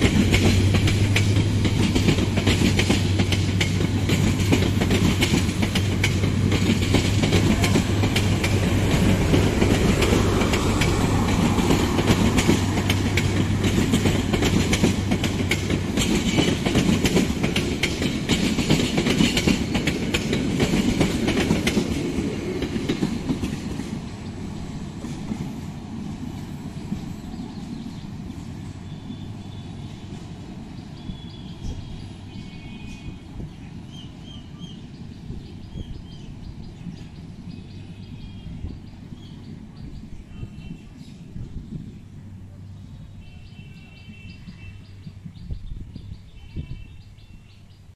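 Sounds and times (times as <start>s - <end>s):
train wheels clattering over rail joints: 0.0s - 24.4s.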